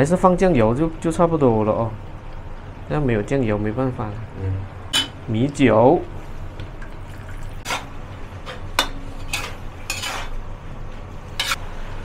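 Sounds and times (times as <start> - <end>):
metal spatula scraping wok: 7.6 - 10.4, 11.3 - 11.6.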